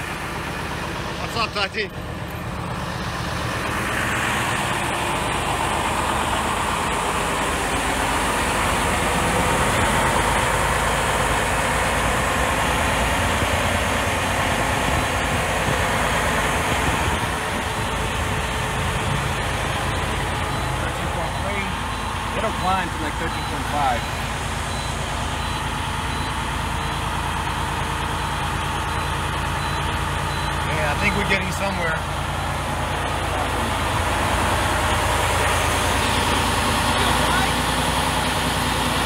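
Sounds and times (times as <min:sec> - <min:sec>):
diesel engine idling: 0:00.0 - 0:39.0.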